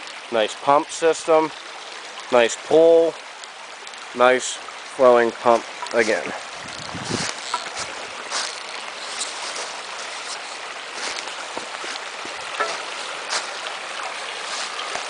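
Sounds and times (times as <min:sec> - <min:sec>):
stream babbling over rocks: 0:00.0 - 0:15.0.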